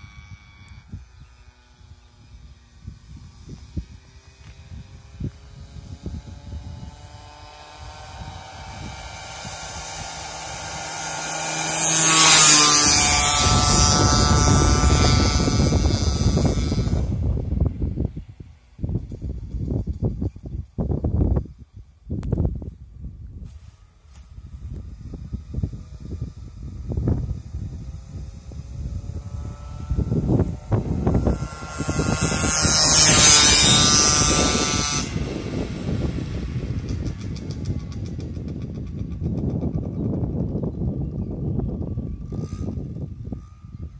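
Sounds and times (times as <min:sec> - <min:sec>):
two-stroke motorbike passing: 0:00.0 - 0:22.5, 0:23.8 - 0:43.9
wind buffeting microphone: 0:00.0 - 0:43.9.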